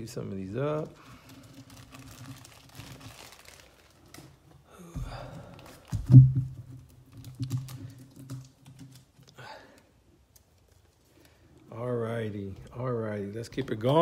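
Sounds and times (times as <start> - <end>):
dull thump: 5.9 - 6.8.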